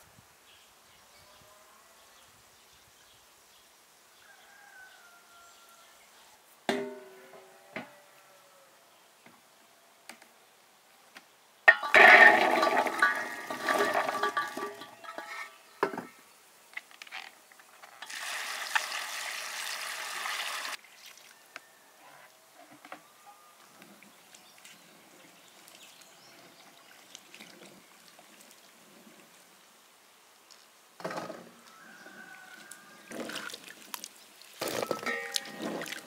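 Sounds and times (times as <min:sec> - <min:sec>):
water pouring into a container: 0:18.0 - 0:21.2, 0:33.2 - 0:36.0.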